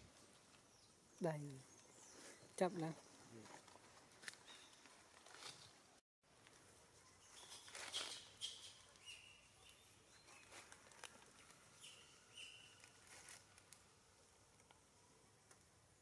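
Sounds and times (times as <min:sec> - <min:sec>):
monkeys rustling fur: 0:06.5 - 0:13.8.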